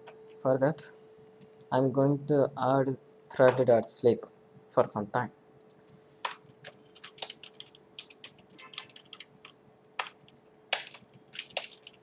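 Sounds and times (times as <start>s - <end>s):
typing on computer keyboard: 5.6s - 12.0s.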